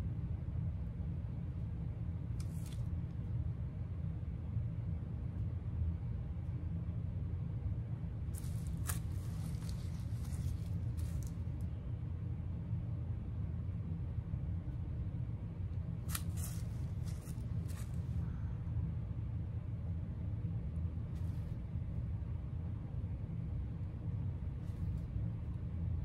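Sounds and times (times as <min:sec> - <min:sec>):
steady low hum: 0:00.0 - 0:26.0
faint rustles: 0:08.4 - 0:11.7, 0:16.1 - 0:18.4.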